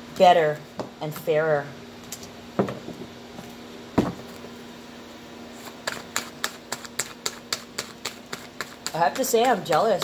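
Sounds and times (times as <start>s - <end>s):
steady hum: 0.0s - 10.0s
thump on table: 2.6s - 2.8s, 4.0s - 4.2s.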